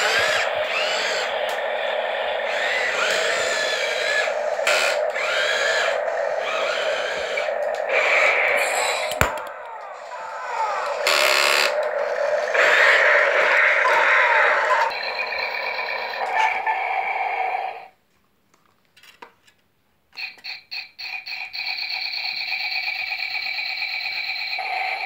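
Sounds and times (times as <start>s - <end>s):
harsh noisy electronic effect: 0.0s - 17.9s
pulsing electronic tone: 0.0s - 17.9s.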